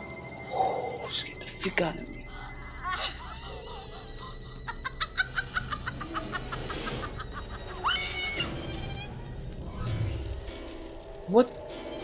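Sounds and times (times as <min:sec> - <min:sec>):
low eerie music: 0:00.0 - 0:12.0
harsh cackling laugh: 0:02.8 - 0:08.2
shrill cry: 0:07.7 - 0:09.1.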